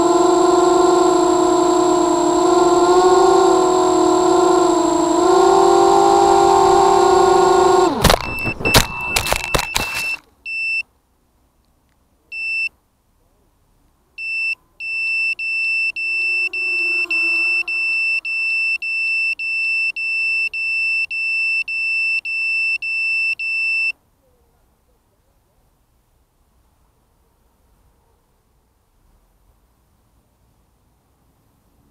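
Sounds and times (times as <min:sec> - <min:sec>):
high beeps of buzzer: 0:04.1 - 0:10.8, 0:14.2 - 0:23.9
drone knocking into grass: 0:07.7 - 0:10.2.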